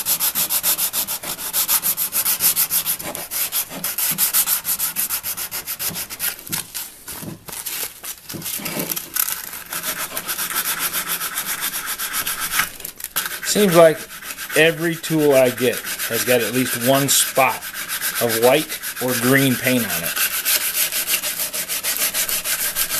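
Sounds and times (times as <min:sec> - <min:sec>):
sandpaper rubbing on wood: 0:00.0 - 0:06.5, 0:08.5 - 0:22.9.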